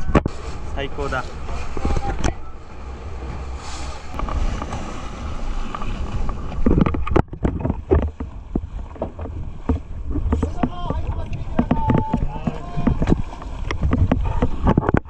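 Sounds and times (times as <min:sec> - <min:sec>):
boat engine drone: 0:00.0 - 0:15.0
wind on the microphone: 0:00.0 - 0:15.0
irregular knocks and thumps: 0:05.7 - 0:15.0.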